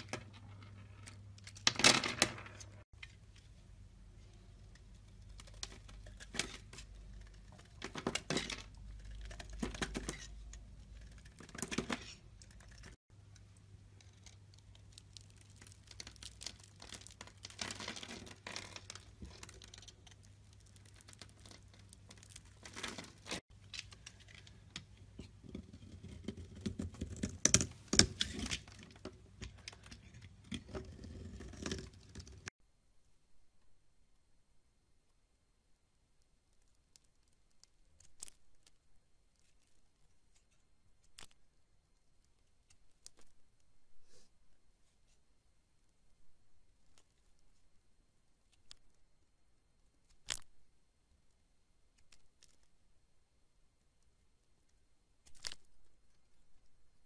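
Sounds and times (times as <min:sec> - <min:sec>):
soap cubes crackling apart: 0:14.0 - 0:24.6.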